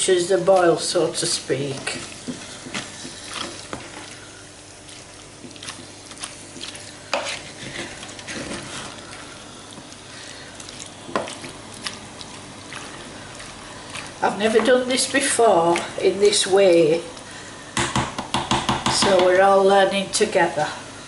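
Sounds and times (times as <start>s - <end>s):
wet scraping of spoon stirring: 0.3s - 17.4s
spoon knocking against pot: 17.8s - 19.3s.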